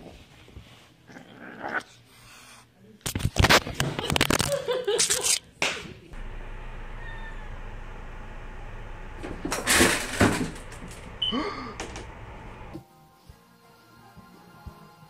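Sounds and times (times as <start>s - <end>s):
loud noisy burst: 6.2s - 12.8s
cat yowling: 6.9s - 7.7s.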